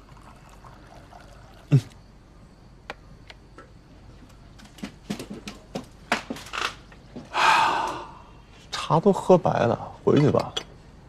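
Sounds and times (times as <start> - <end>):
hot water pouring into cup: 0.0 - 2.0
china clicking and tapping: 10.1 - 10.7.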